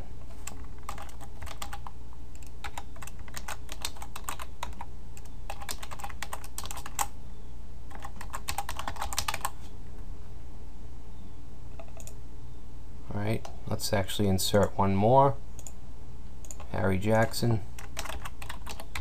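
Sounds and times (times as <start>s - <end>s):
keyboard typing: 0.3s - 7.1s, 7.9s - 9.6s, 11.8s - 12.2s, 16.4s - 16.8s, 17.8s - 19.0s.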